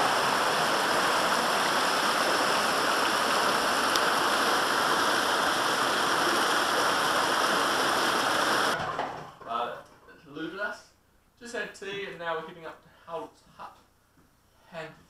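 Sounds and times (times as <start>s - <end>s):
river rushing over rocks: 0.0s - 8.8s.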